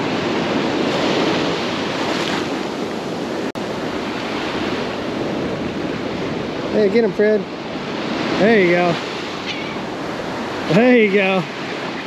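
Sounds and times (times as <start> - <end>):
surf washing onto sandy beach: 0.0 - 12.0
wind on microphone: 0.0 - 12.0.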